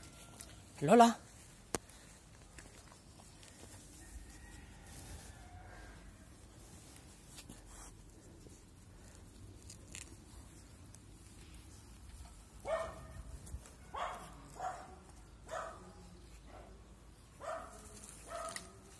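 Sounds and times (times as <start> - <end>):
puppy barking: 12.6 - 13.2, 13.9 - 15.9, 17.4 - 18.7.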